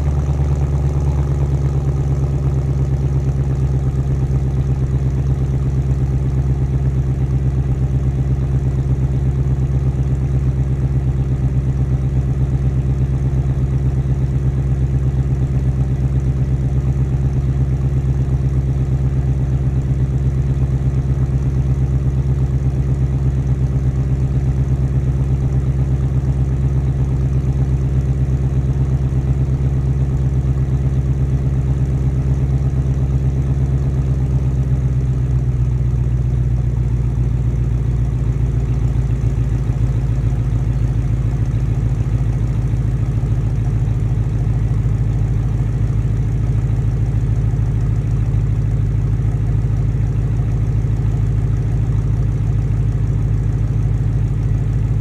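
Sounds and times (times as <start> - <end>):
car engine idling: 0.0 - 55.0.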